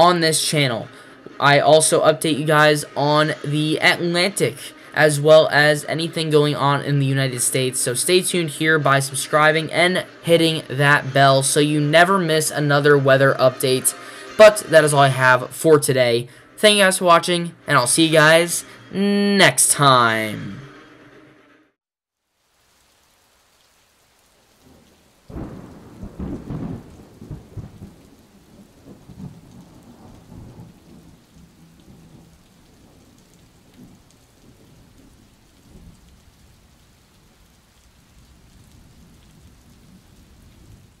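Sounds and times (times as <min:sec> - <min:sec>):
rain hiss: 0:00.0 - 0:21.5, 0:22.2 - 0:41.0
crackling thunderclap: 0:24.6 - 0:41.0
rolling thunder rumbles: 0:24.6 - 0:41.0.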